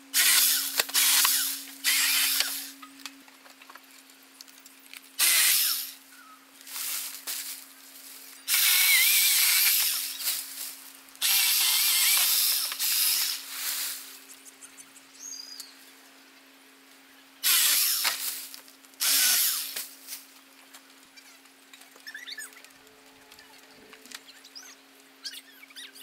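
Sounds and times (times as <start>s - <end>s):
electric pole saw cutting: 0.1s - 2.8s, 5.2s - 6.0s, 8.5s - 10.4s, 11.2s - 13.5s, 17.4s - 18.4s, 19.0s - 19.9s.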